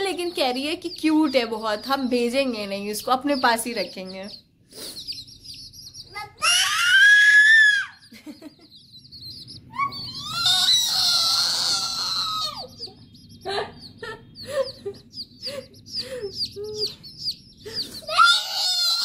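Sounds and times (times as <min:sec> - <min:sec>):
baby chicks peeping: 0:00.0 - 0:19.0
child crying: 0:06.2 - 0:08.0, 0:09.7 - 0:12.9, 0:18.0 - 0:19.0.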